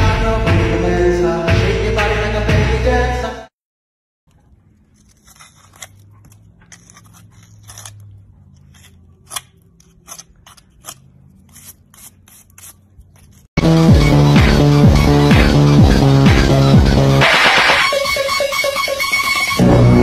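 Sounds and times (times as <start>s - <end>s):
hoof pick scraping dirt: 5.0s - 13.5s.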